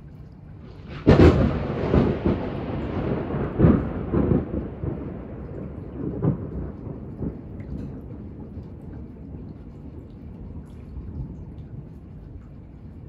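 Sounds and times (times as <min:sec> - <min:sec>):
rolling thunder rumbles: 0:00.6 - 0:12.2
thunder crack: 0:00.7 - 0:09.4.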